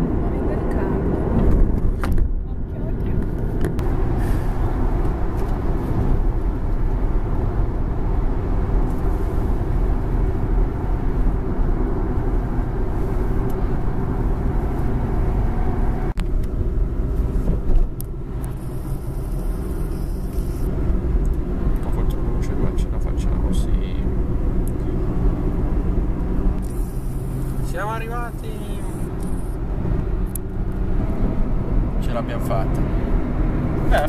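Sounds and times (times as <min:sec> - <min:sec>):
car engine and tyre rumble: 0:00.0 - 0:34.0.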